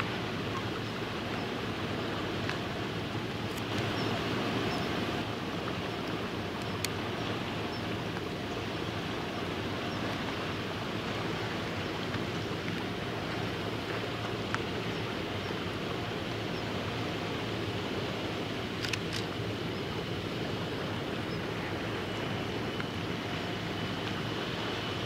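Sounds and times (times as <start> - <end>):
small waves lapping at shore: 0.0 - 25.0
wind: 0.0 - 25.0
faint click: 6.6 - 7.0, 18.8 - 19.3.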